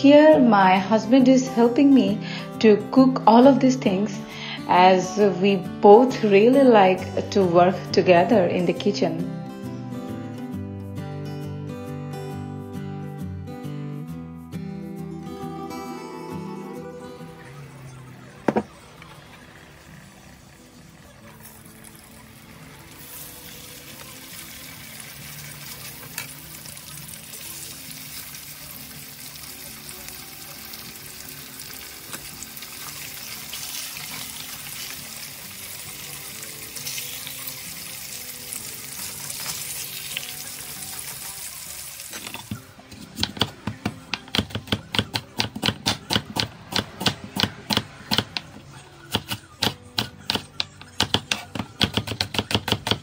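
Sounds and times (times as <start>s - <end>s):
fish sizzling in hot oil: 19.2s - 42.6s
knife chopping onion on board: 43.0s - 53.0s.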